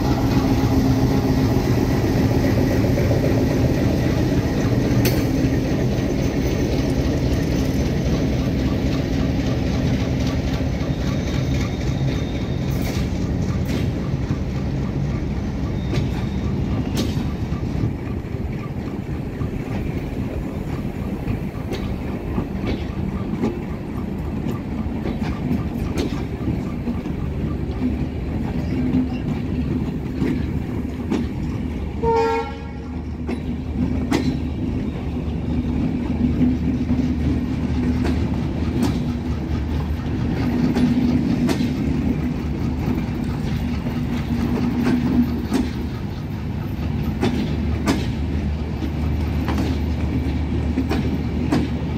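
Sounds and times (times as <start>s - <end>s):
train coaches rumbling past: 0.0s - 51.9s
wheels clicking over rail joints: 0.0s - 51.9s
train horn toot: 32.0s - 33.0s.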